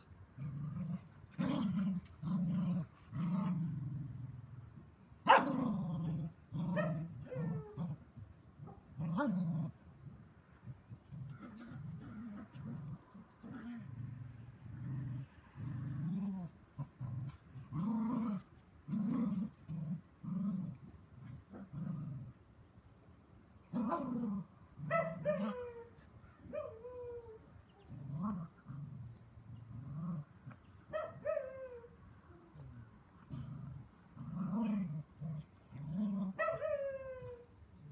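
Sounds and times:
dogs growling in play: 0:00.0 - 0:22.4, 0:23.7 - 0:25.8, 0:27.8 - 0:30.7, 0:32.5 - 0:37.9
puppy yelps: 0:36.4 - 0:37.4.

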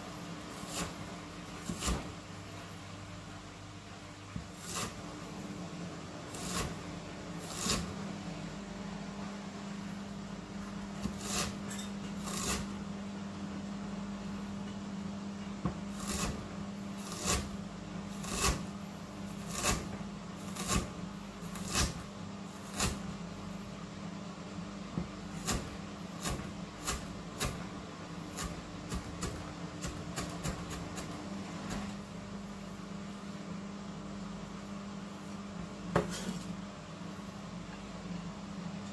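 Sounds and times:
steady low hum: 0:00.0 - 0:38.9
knife slicing on cutting board: 0:00.5 - 0:01.0, 0:01.6 - 0:02.1, 0:04.4 - 0:05.0, 0:06.3 - 0:06.8, 0:07.4 - 0:08.0, 0:11.0 - 0:12.8, 0:15.9 - 0:16.4, 0:17.0 - 0:17.6, 0:18.2 - 0:18.7, 0:19.3 - 0:22.0, 0:22.6 - 0:23.0.

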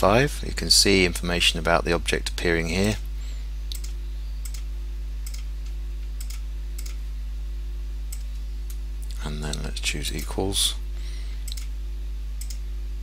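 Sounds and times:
low electrical hum: 0:00.0 - 0:13.0
computer mouse clicks: 0:03.7 - 0:05.5, 0:06.2 - 0:07.0, 0:12.4 - 0:12.6.

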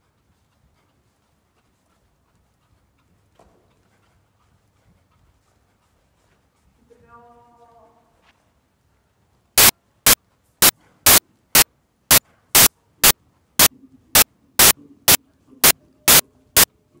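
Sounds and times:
static hiss bursts: 0:16.1 - 0:16.7.

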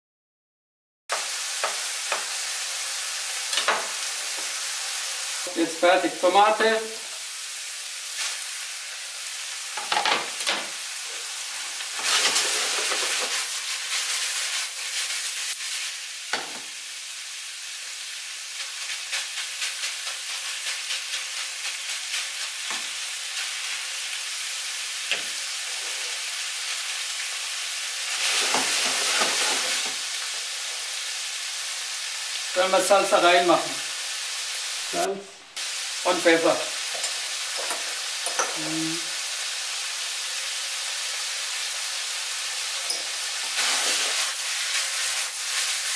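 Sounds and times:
meat and vegetables sizzling in a pan: 0:01.1 - 0:45.9
spatula scraping a pan: 0:12.0 - 0:15.2.

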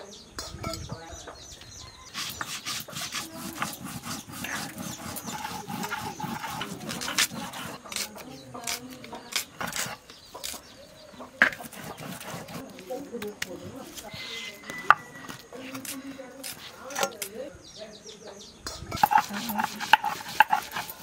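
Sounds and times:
stone grinding on stone: 0:02.1 - 0:10.7, 0:11.4 - 0:17.3, 0:18.9 - 0:21.0.

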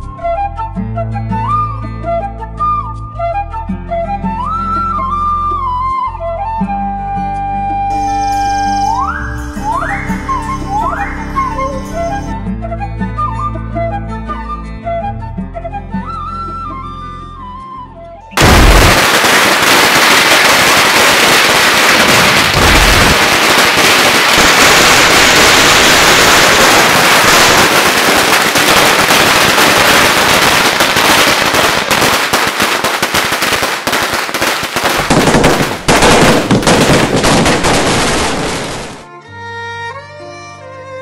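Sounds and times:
firecrackers crackling and popping: 0:18.4 - 0:39.1.

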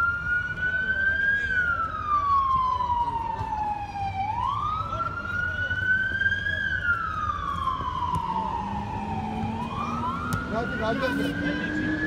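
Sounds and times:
siren wailing: 0:00.0 - 0:12.0.

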